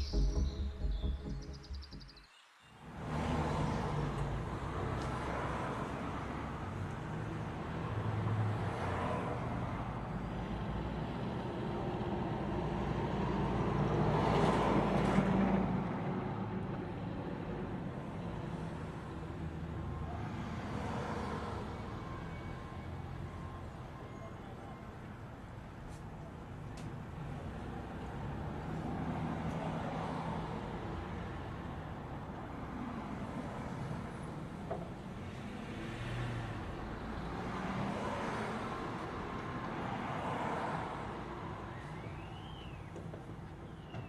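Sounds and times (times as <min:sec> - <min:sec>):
music cue: 0:00.0 - 0:02.6
road traffic rumble: 0:02.8 - 0:44.0.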